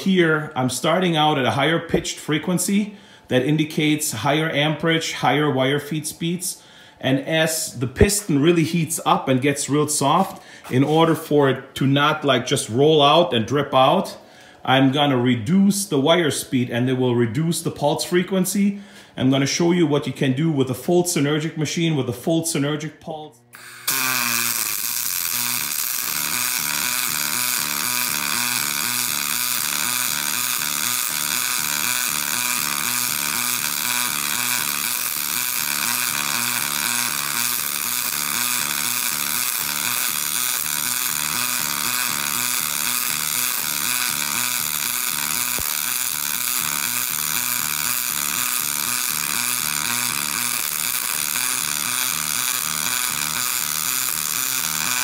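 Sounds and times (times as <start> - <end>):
welding arc buzzing with fast pulse: 23.5 - 55.0.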